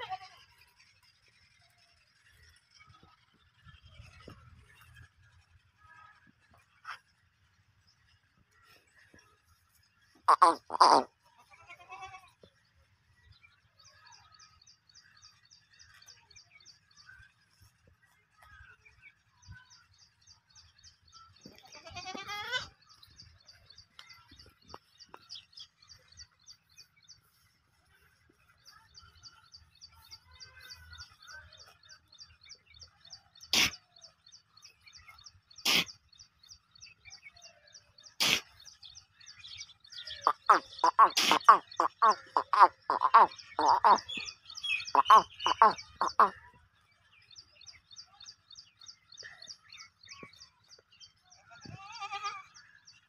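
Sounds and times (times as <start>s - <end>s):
goat kid bleating: 0.0s - 0.5s, 10.3s - 12.5s, 21.5s - 22.7s, 40.3s - 44.1s, 44.9s - 46.3s, 51.6s - 52.6s
goat kids feeding: 0.0s - 0.7s, 8.5s - 12.5s, 19.9s - 37.3s, 47.8s - 52.8s
fast high-pitched chirping: 40.2s - 46.3s.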